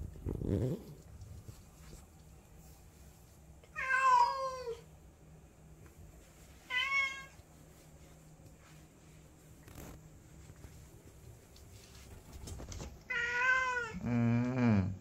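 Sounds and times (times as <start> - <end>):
cat meowing: 3.8 - 4.8, 13.1 - 14.0.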